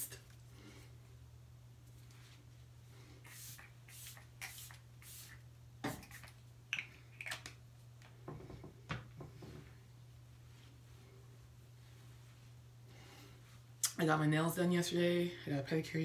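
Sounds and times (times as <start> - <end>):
spray bottle hissing: 3.2 - 6.4.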